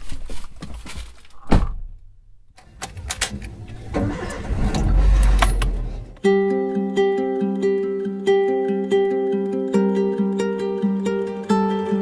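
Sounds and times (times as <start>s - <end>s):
car door shutting: 2.6s - 6.2s
car engine starting and running: 2.6s - 6.2s.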